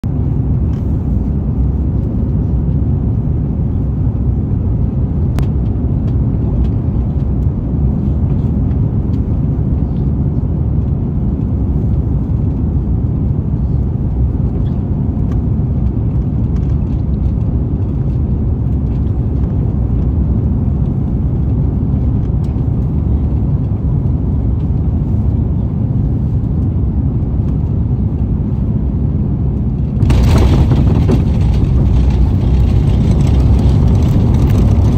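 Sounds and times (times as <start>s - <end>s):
airliner engines rumbling: 0.0s - 34.9s
rushing air: 29.8s - 34.9s.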